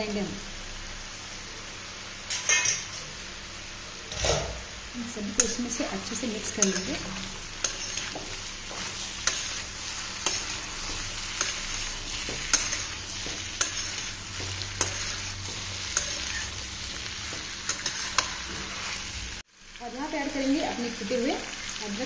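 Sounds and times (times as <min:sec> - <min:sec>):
vegetables sizzling in oil: 0:00.0 - 0:22.0
metal spatula scraping pan: 0:06.4 - 0:19.1.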